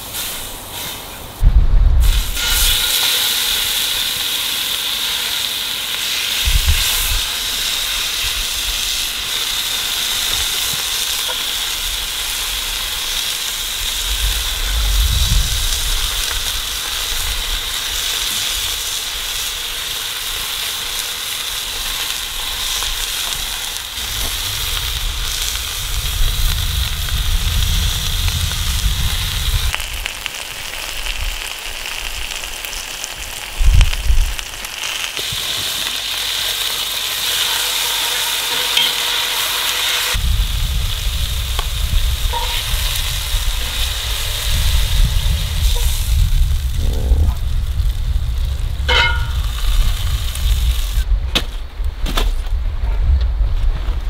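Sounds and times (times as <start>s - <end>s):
low rumbles: 1.2s - 2.8s, 12.1s - 18.0s, 24.0s - 30.1s, 40.1s - 54.0s
steaks sizzling in a skillet: 2.1s - 46.7s, 48.8s - 51.0s.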